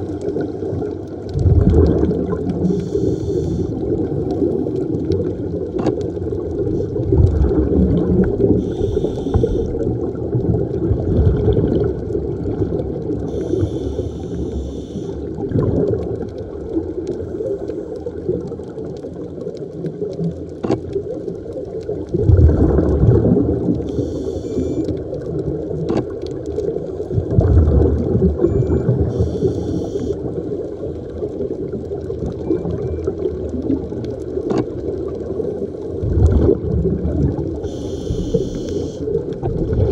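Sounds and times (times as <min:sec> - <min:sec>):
muffled underwater rush: 0:00.0 - 0:39.9
rumbling exhaled bubbles: 0:00.0 - 0:39.9
regulator inhalation hiss: 0:02.7 - 0:03.7, 0:08.6 - 0:09.8, 0:13.3 - 0:15.2, 0:23.9 - 0:24.8, 0:29.2 - 0:30.2, 0:37.6 - 0:39.0.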